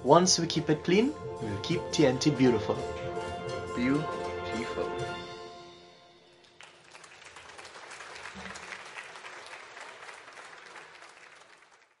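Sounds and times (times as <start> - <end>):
crowd applauding: 6.3 - 12.0.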